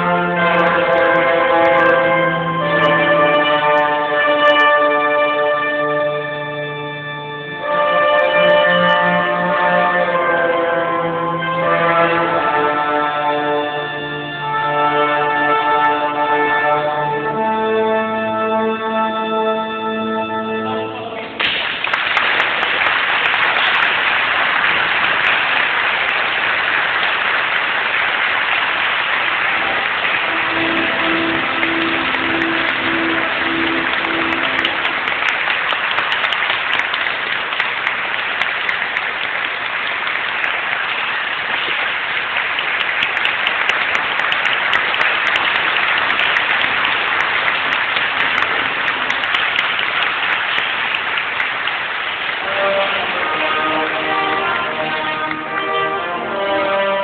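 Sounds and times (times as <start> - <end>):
congregation clapping: 0.0 - 18.5, 20.1 - 57.0
short repeated notes: 29.6 - 35.3.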